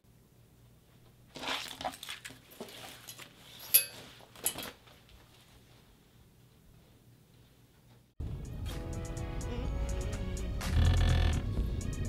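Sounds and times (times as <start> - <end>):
papers rustling: 1.3 - 5.7
sharp clink: 3.7 - 4.6.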